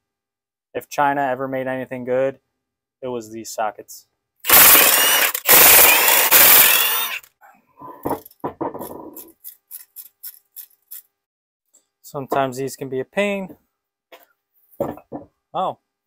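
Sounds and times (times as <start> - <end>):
impact wrench whining: 4.5 - 7.3.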